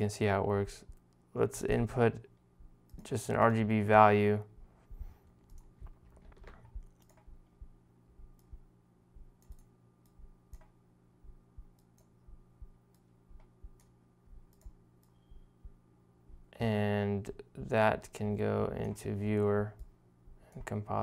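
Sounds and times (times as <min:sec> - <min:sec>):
faint hum: 0:00.0 - 0:21.0
mouse and keyboard clicks: 0:05.5 - 0:07.3.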